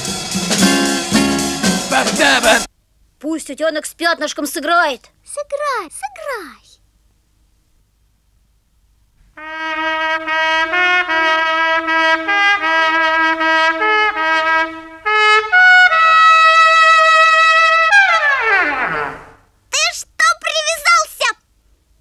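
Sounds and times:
trumpet playing tune: 0.0 - 2.7, 9.4 - 19.4.

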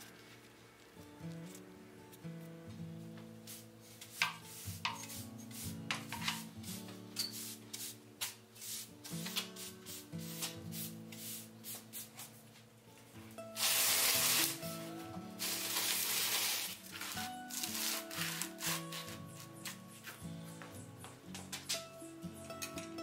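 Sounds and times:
background guitar music: 0.0 - 23.0
push broom sweeping concrete: 3.5 - 12.3, 13.6 - 19.5.

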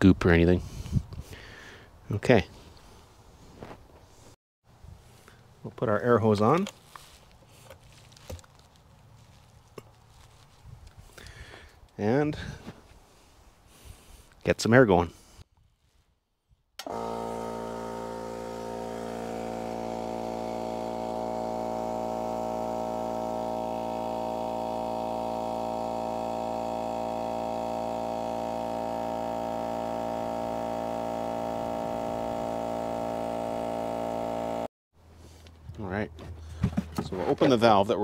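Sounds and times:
air compressor running: 16.8 - 35.6.

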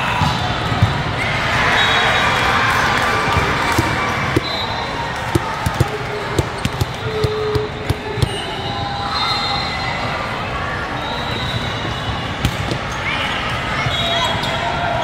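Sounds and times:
crowd chatter: 0.0 - 15.0
volleyballs smacking and bouncing: 3.2 - 4.5, 5.1 - 8.4.

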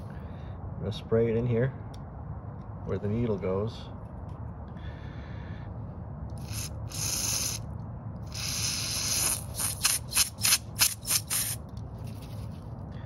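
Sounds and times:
aerosol spray hissing: 6.4 - 7.6, 8.3 - 11.6.

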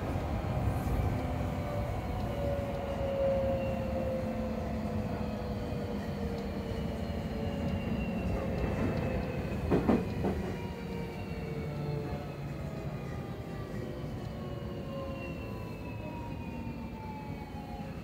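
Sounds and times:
train running noise: 0.0 - 18.0.

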